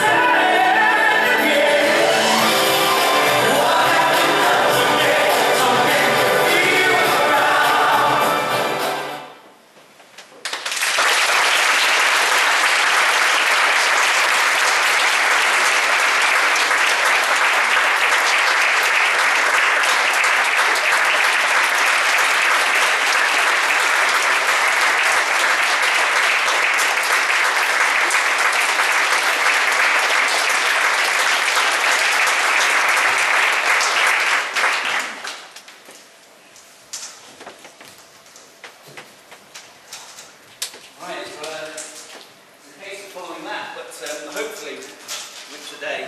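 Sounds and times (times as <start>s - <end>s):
large audience clapping: 10.2s - 35.8s.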